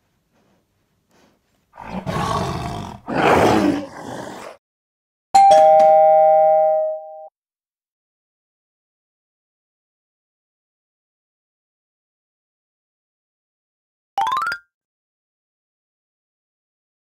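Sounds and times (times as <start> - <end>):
two-note doorbell chime: 5.4 - 7.3.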